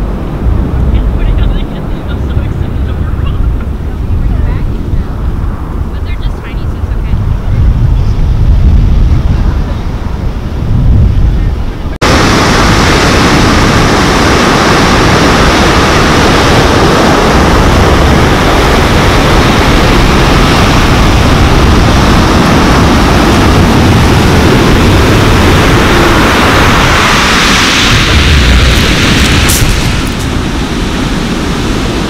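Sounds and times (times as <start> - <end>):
surf washing over pebble beach: 12.0 - 32.0.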